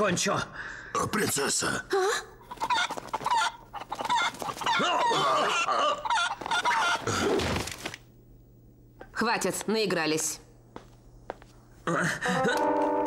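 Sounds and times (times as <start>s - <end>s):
chicken clucking and squawking: 2.4s - 7.2s.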